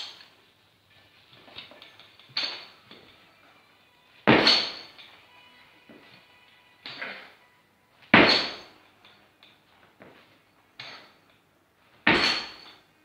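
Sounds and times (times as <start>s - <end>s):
barbell thudding on platform: 4.3s - 4.9s, 8.1s - 8.7s, 12.0s - 12.7s.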